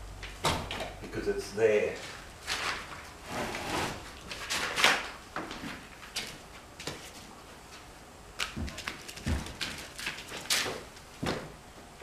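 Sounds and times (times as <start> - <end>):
wooden bed frame scraping: 2.5 - 4.8.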